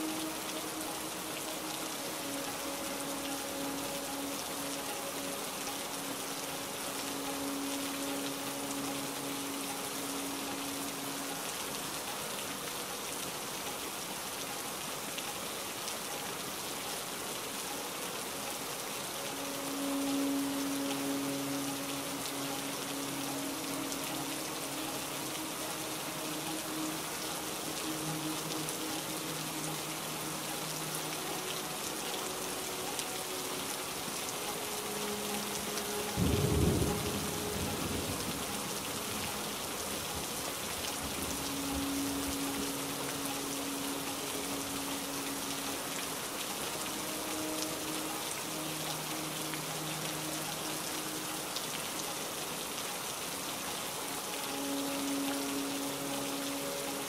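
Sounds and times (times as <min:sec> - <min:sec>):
heavy rain falling: 0:00.0 - 0:57.0
soft background music: 0:00.0 - 0:57.0
low rumble of thunder: 0:36.2 - 0:38.5.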